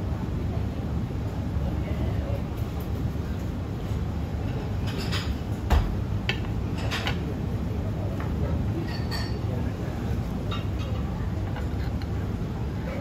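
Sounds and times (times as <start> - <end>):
low background hum: 0.0 - 13.0
dishes and utensils clinking: 4.8 - 5.4, 6.7 - 7.2, 8.8 - 9.6, 10.5 - 12.1.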